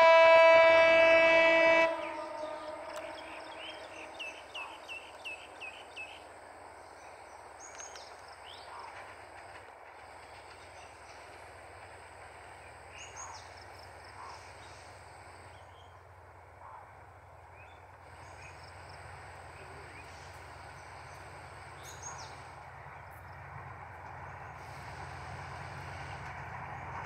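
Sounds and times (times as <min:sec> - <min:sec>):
faint locomotive rumble: 0:00.0 - 0:27.0
birds chirping: 0:01.8 - 0:08.8.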